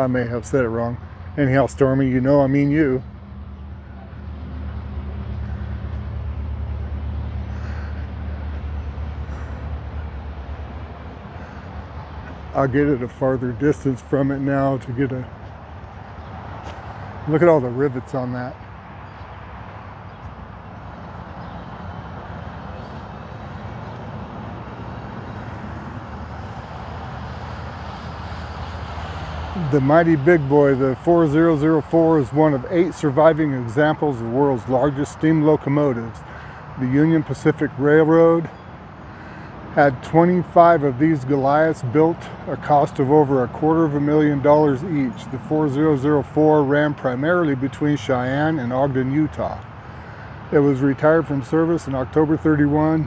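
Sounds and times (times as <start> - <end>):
low engine rumble: 20.1 - 53.0.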